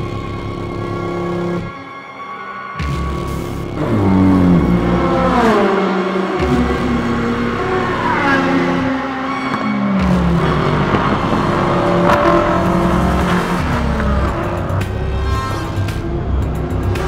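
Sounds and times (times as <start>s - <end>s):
background music: 0.0s - 17.0s
race car engines passing by: 3.7s - 17.0s.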